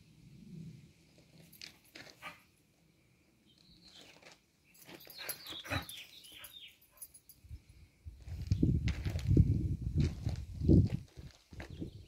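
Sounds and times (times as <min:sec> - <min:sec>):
paws scuffing on gravel: 0:10.0 - 0:11.8.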